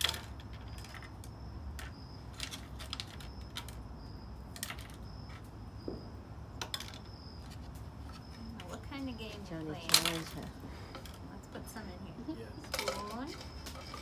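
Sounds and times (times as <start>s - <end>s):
faint high insect chirp: 0.0s - 14.0s.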